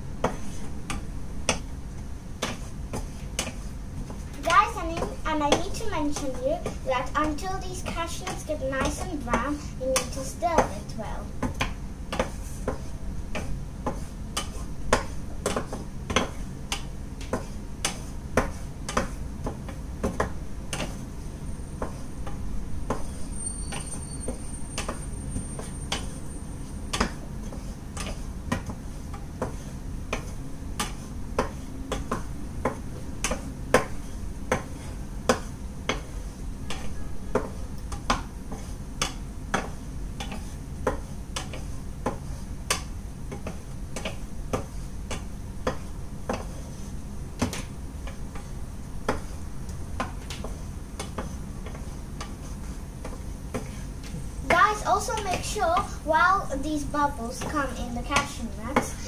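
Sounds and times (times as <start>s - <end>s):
low steady hum: 0.0s - 59.0s.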